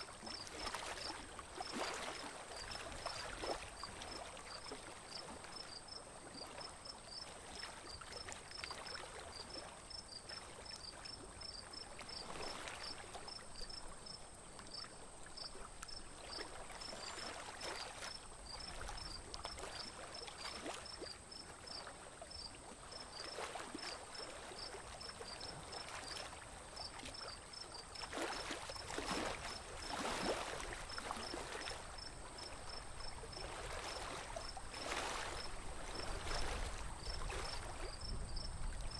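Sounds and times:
water splashing along boat hull: 0:22.4 - 0:38.9.

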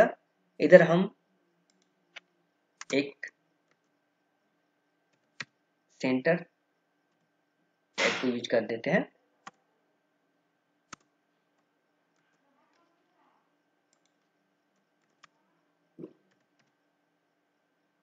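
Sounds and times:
keyboard and mouse clicks: 0:10.9 - 0:12.9, 0:13.9 - 0:14.3, 0:15.0 - 0:15.4, 0:16.0 - 0:16.8.

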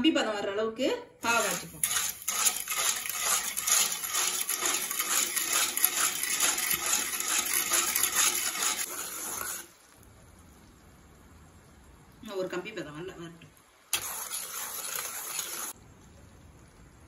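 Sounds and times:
metal spatula scraping a pan: 0:01.3 - 0:09.7, 0:14.0 - 0:15.8.

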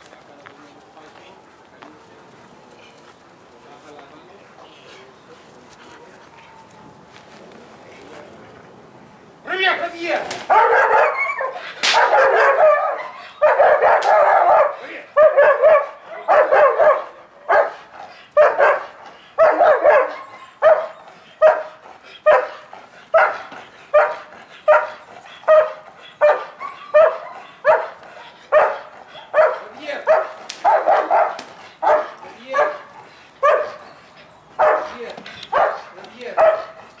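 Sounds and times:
dog barking: 0:10.5 - 0:33.8, 0:34.6 - 0:36.8.

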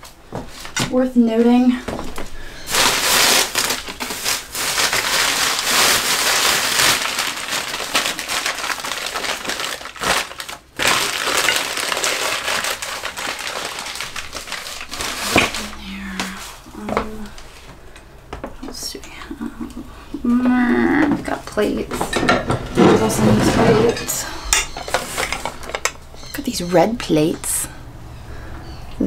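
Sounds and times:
paper crumpling and rustling: 0:02.7 - 0:16.7.

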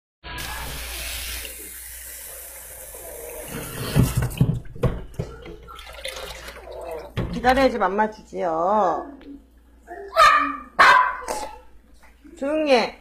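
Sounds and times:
tap water running into sink: 0:00.4 - 0:07.7.

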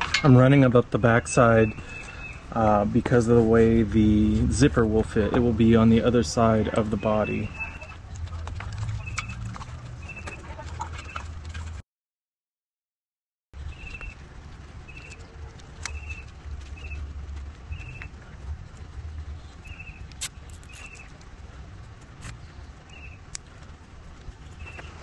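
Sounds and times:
steady low rumble: 0:00.0 - 0:11.8, 0:13.6 - 0:25.0
bird chirping: 0:01.0 - 0:03.0, 0:06.6 - 0:11.3, 0:13.6 - 0:14.2, 0:14.8 - 0:18.4, 0:19.3 - 0:21.2, 0:22.2 - 0:23.3, 0:24.2 - 0:25.0.

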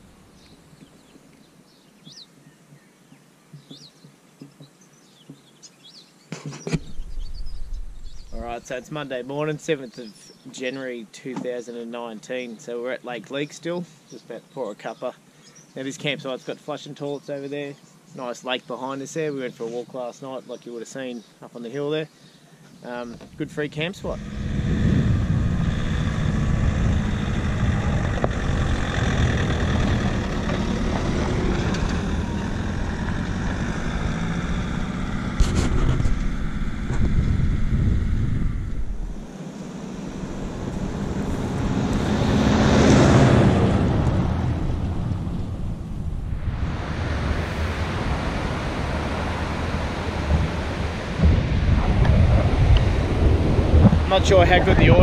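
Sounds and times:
wind rumble on microphone: 0:06.7 - 0:08.6, 0:23.2 - 0:55.0
vehicle driving on gravel road: 0:24.0 - 0:55.0
surf breaking on beach: 0:40.2 - 0:55.0.

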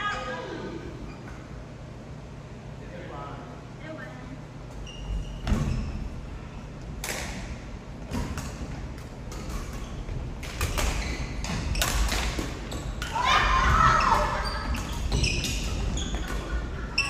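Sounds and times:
badminton rackets hitting shuttlecocks: 0:10.4 - 0:13.5.

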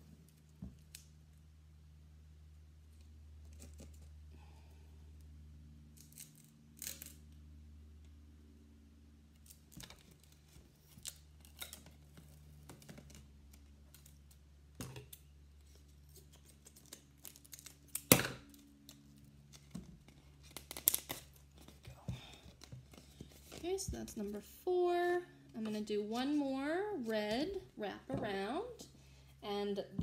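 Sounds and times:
low steady hum: 0:00.0 - 0:30.0
duct tape ripping: 0:06.0 - 0:07.3, 0:09.4 - 0:14.4, 0:15.0 - 0:21.8.

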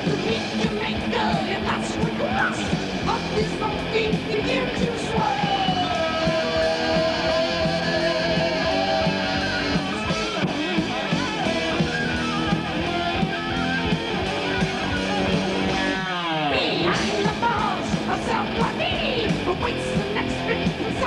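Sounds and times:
distorted lead electric guitar: 0:00.0 - 0:21.0
heavy metal band playing: 0:00.0 - 0:21.0.

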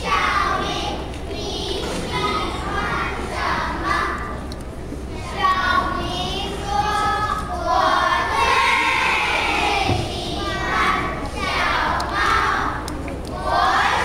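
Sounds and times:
children chanting in unison: 0:05.3 - 0:14.0.

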